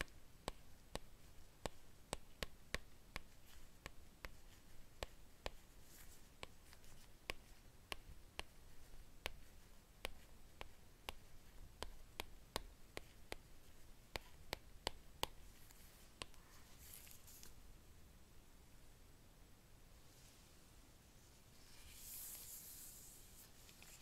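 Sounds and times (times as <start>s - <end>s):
soft rustle: 3.2s - 12.1s, 15.3s - 17.7s, 19.9s - 24.0s.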